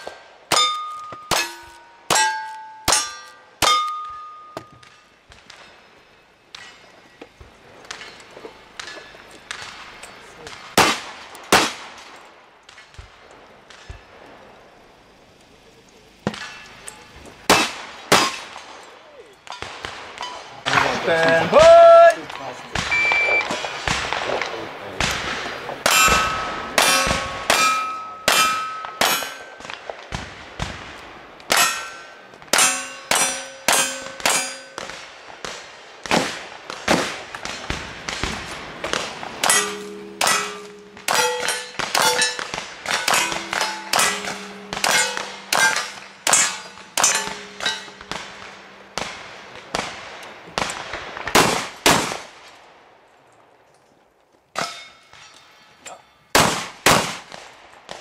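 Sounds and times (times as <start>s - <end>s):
steel targets ringing: 0.0s - 7.1s, 16.2s - 18.5s, 25.8s - 29.8s, 31.5s - 35.0s, 38.9s - 50.2s, 54.6s - 56.4s
gunshots: 8.8s - 14.1s, 17.5s - 18.8s, 19.4s - 52.6s, 56.4s - 58.0s
shot timer beep: 22.9s - 23.6s.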